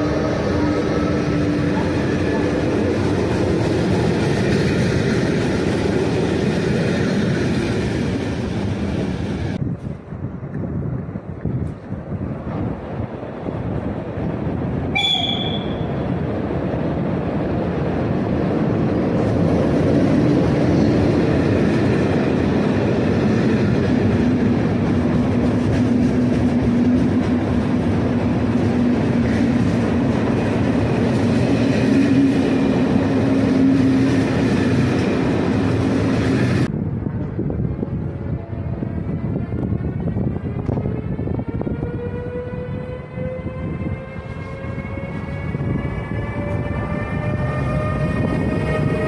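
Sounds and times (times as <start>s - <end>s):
train wheels rumbling: 0.0s - 49.0s
train horn: 14.9s - 16.0s, 41.1s - 49.0s.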